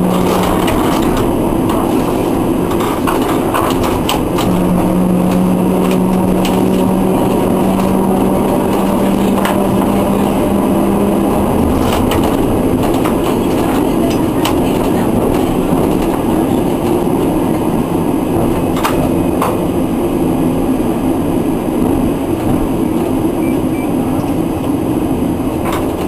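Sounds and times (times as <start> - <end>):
low steady hum: 0.0 - 17.8
wheels clicking on rails: 0.0 - 21.2, 21.8 - 26.0
tram rumbling and rattling: 0.0 - 26.0.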